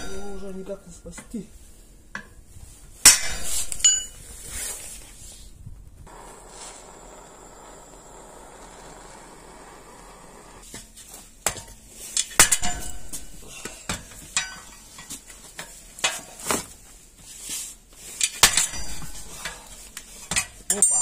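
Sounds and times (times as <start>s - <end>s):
gas torch hissing: 6.1s - 10.6s.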